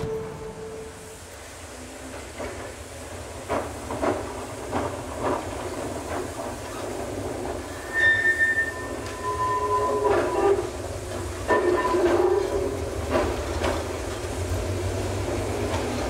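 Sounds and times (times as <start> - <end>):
low rumble of tram: 0.0 - 16.0
tram wheels knocking over rail joints: 2.0 - 7.8, 9.9 - 16.0.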